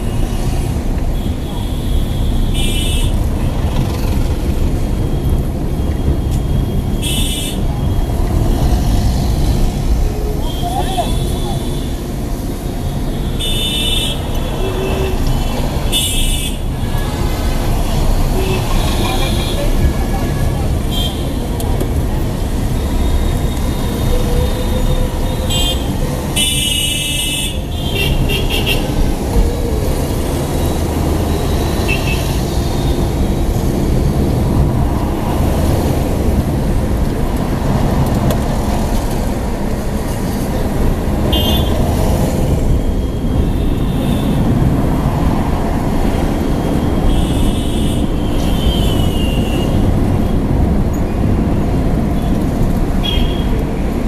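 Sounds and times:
car road and engine rumble: 0.0 - 54.0
car horns honking: 41.3 - 41.8.

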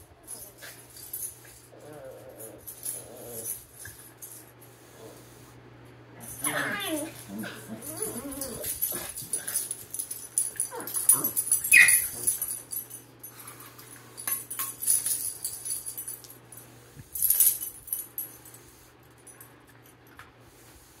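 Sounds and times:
dogs whining: 6.2 - 9.3, 10.6 - 12.6
shuffling and rustling: 6.2 - 18.6.

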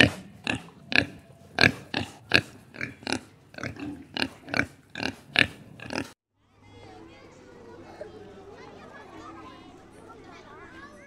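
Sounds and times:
pigs grunting: 0.0 - 6.2.

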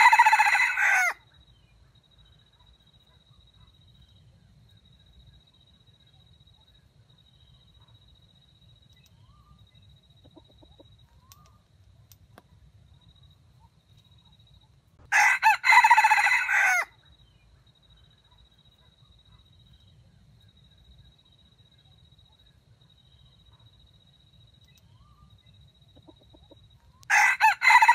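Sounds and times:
rooster crowing: 0.0 - 1.2, 15.1 - 16.9, 27.1 - 27.9.

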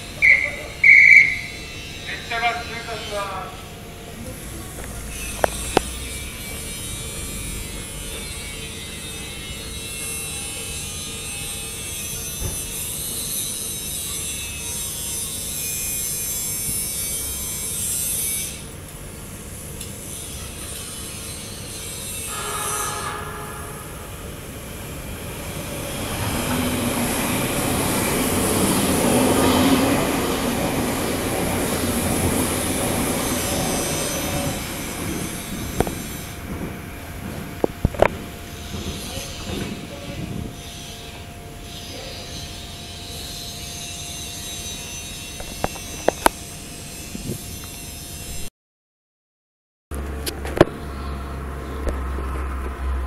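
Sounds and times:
high squealing tones: 0.0 - 3.7, 4.3 - 11.4
train low rumble: 0.0 - 47.4, 49.9 - 53.0
train high rasping hiss: 3.6 - 36.9.

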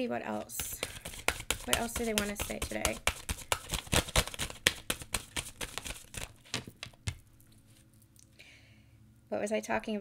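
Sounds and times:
cards being shuffled: 0.5 - 7.9.

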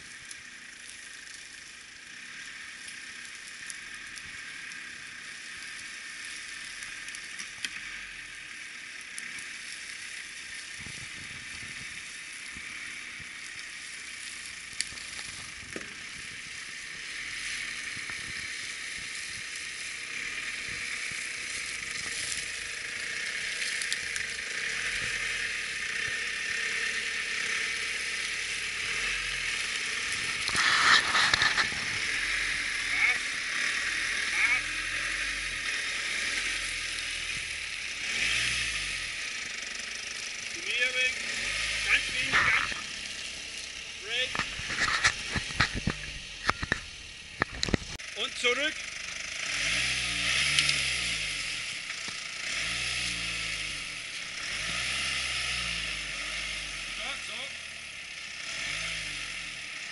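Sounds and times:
tyres crackling over leaves: 0.0 - 58.8
vehicle engine running: 0.0 - 59.9
twigs snapping: 21.5 - 25.2.

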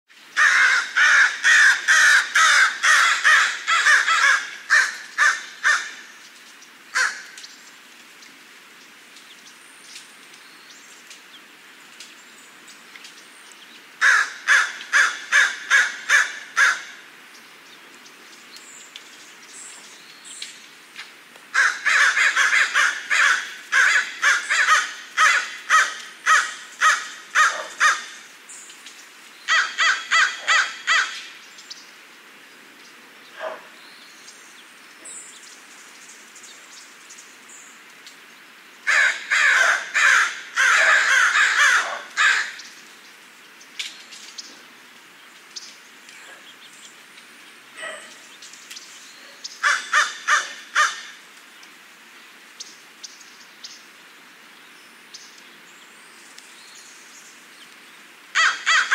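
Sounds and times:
crow cawing: 0.4 - 6.0, 6.9 - 7.3, 14.0 - 17.0, 21.5 - 28.2, 29.5 - 31.3, 38.9 - 42.6, 49.6 - 51.2, 58.4 - 58.9.

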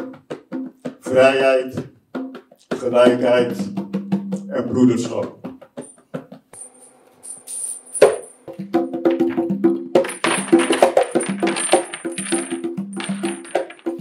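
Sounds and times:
bright jingling rattle: 10.1 - 14.0.

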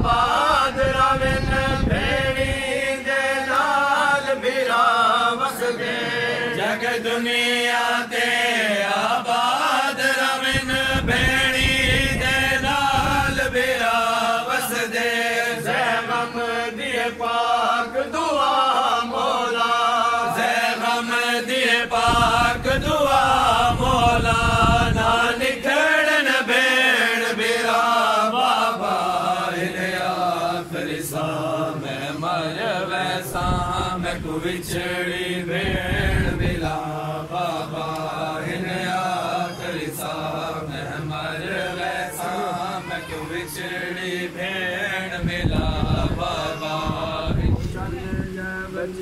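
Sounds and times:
men chanting a lament: 0.0 - 49.0.

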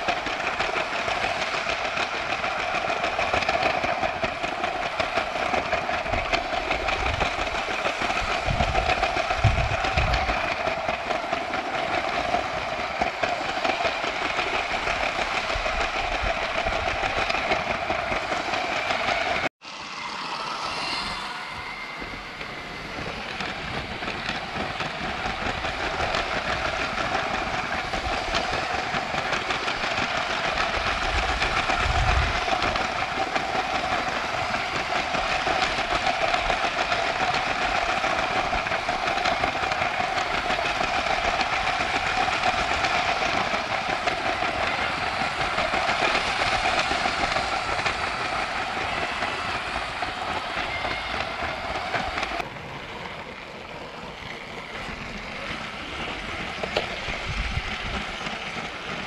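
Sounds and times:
wheels rattling on rails: 0.0 - 59.0
toy train motor whine: 19.2 - 52.4.

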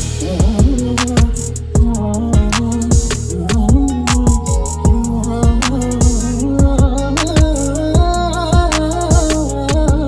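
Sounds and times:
sharp ticking percussion: 0.0 - 10.0
held wavering melodic tone: 3.3 - 6.6.

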